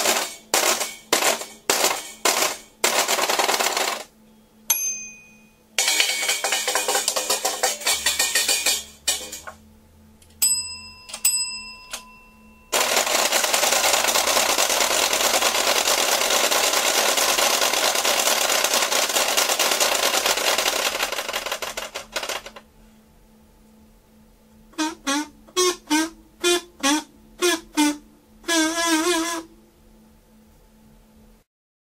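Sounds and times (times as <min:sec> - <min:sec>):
desk call bell ringing: 0:04.7 - 0:09.5, 0:10.4 - 0:14.6
metal washboard scraping: 0:05.8 - 0:09.6.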